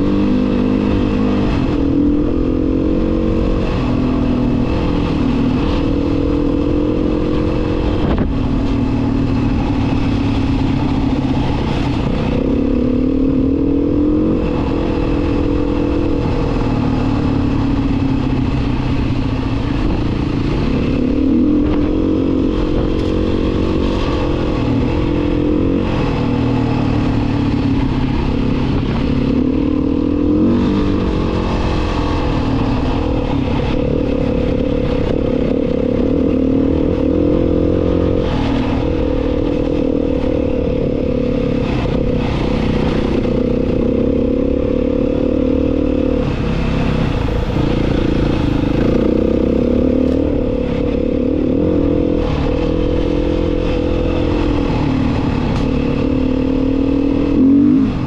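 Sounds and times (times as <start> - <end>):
small vehicle engine running: 0.0 - 58.0.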